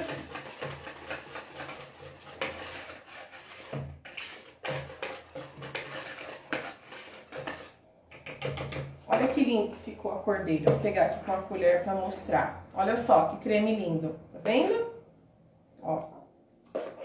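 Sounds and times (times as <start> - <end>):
whisk scraping a bowl: 0.0 - 10.1, 16.7 - 17.0.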